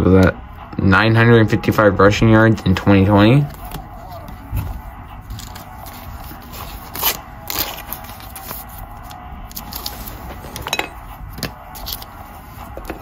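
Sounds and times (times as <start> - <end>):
trading cards sliding and scraping: 3.4 - 13.0.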